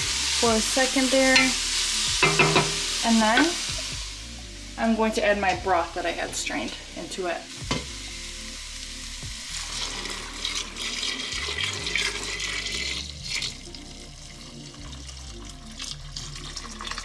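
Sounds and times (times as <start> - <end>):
broth pouring into a pot: 9.2 - 17.0.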